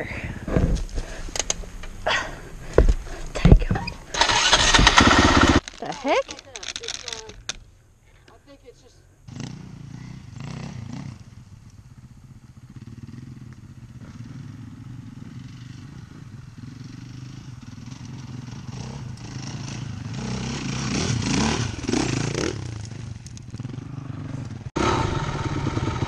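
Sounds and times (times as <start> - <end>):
dirt bike engine revving: 4.0 - 6.2, 9.3 - 26.0.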